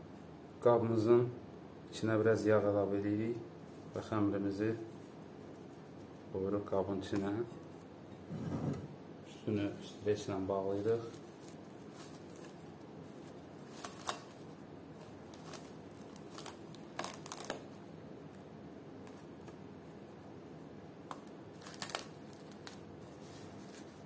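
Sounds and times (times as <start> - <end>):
cling film crinkling: 10.0 - 17.8, 21.1 - 24.0.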